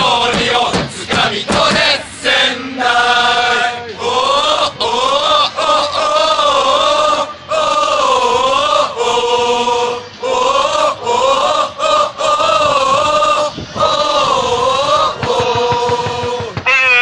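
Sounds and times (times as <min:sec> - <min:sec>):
football supporters chanting: 0:00.0 - 0:16.7.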